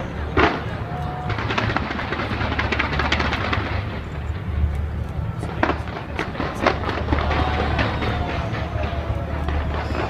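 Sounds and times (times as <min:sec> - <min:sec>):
loud firework bangs: 0:00.0 - 0:04.7, 0:05.4 - 0:10.0
fireworks crackling and banging: 0:00.0 - 0:10.0
low rumble of fireworks: 0:00.0 - 0:10.0.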